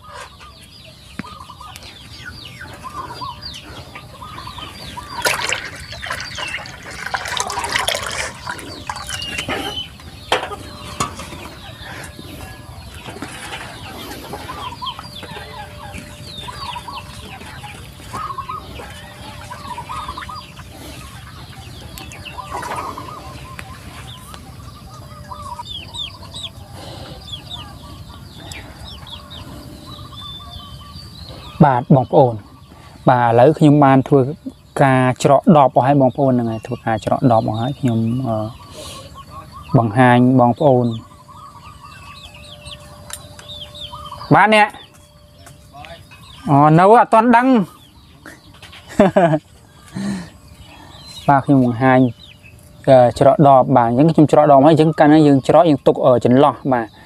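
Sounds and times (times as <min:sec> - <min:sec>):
chickens clucking: 0:00.0 - 0:57.0
liquid sloshing in metal basin: 0:05.2 - 0:09.9.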